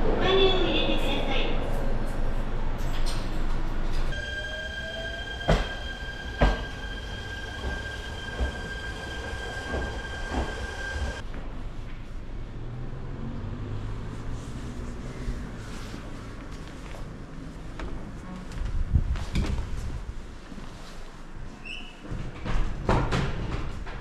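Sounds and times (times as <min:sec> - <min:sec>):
electric train whine: 0:03.9 - 0:11.2
high squeal: 0:04.1 - 0:11.2.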